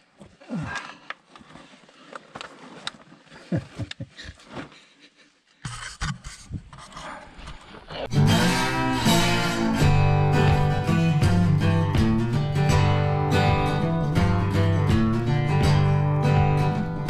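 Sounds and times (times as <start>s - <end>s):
loud guitar music: 8.1s - 17.0s.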